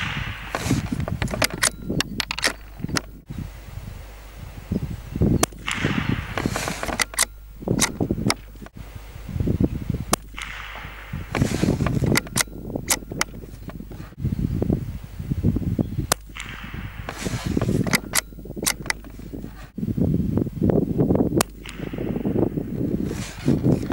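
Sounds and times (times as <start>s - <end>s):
rifle shots cracking: 5.4s - 8.8s, 10.1s - 14.1s.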